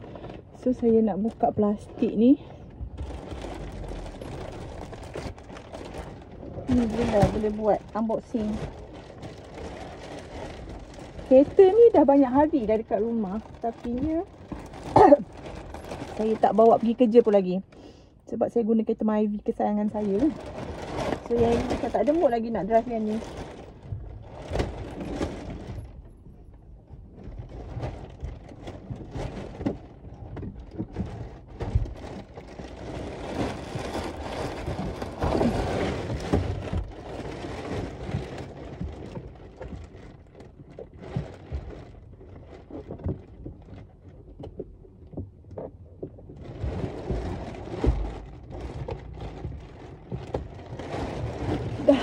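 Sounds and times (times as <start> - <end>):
plastic film peeling and crinkling: 2.2 - 17.6, 19.4 - 26.2, 27.2 - 44.1
knocks and thumps: 20.3 - 52.0.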